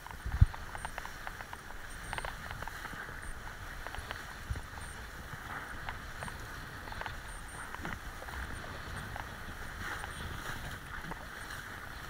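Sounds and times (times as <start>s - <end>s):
water rushing under board: 0.0s - 12.0s
wind rumbling on microphone: 0.0s - 12.0s.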